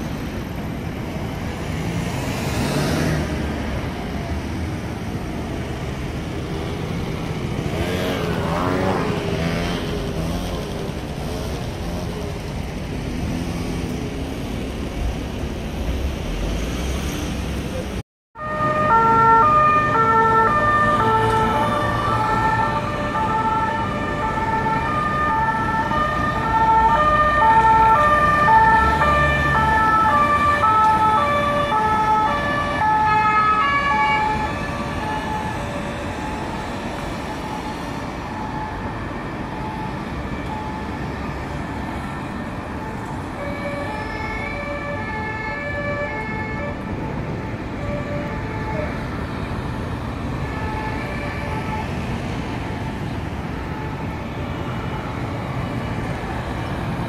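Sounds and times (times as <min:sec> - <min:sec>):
passing traffic rumble: 0:00.0 - 0:57.0
two-tone police siren: 0:18.4 - 0:57.0.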